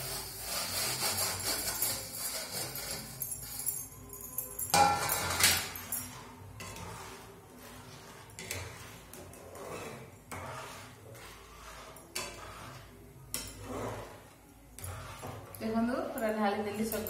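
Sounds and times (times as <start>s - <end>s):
metal spatula scraping a steel pot: 0.0s - 17.0s
metal clinking on pot: 1.3s - 7.2s, 11.8s - 17.0s.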